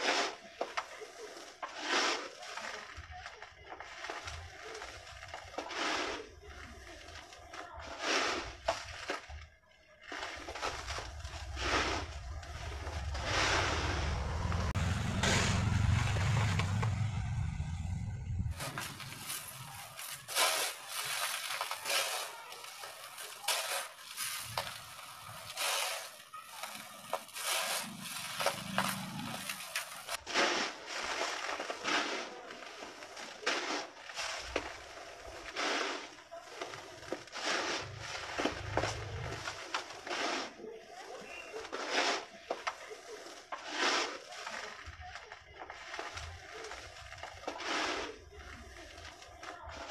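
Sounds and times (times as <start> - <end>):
hands scooping gritty concrete mix: 0.0 - 16.2, 18.5 - 49.9
low rumble: 10.6 - 21.6, 26.6 - 30.2, 37.8 - 39.7.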